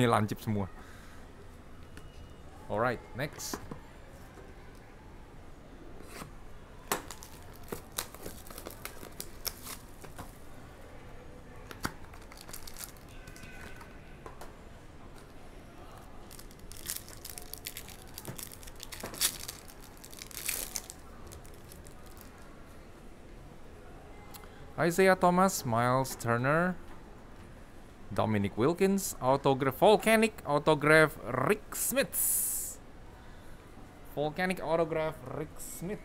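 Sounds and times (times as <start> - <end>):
wrapper crinkling and tearing: 7.0 - 10.2, 12.1 - 13.8, 16.2 - 22.4.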